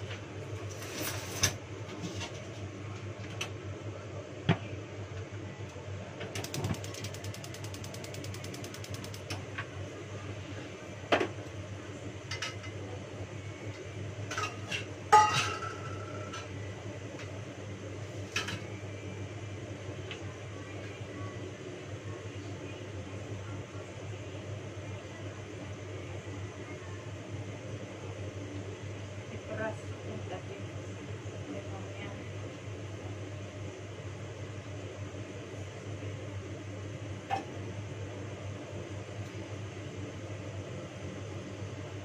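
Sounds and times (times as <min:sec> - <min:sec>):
rapid ticking: 0:06.4 - 0:09.3
pots and utensils clinking: 0:14.3 - 0:16.5.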